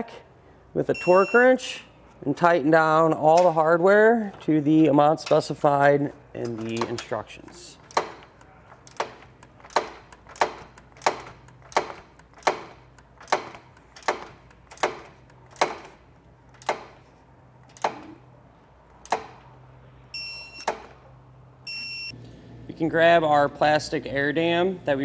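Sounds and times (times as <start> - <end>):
electronic beep: 21.7 - 22.1.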